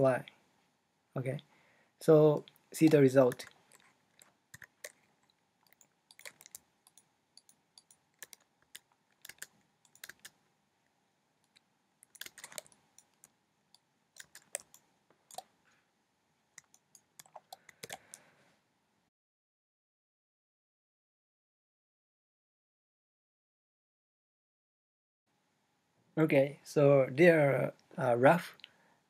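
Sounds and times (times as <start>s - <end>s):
keyboard keystrokes: 5.7s - 10.4s, 12.0s - 13.2s, 14.2s - 15.4s, 16.6s - 18.0s
mouse clicks: 16.6s - 18.2s.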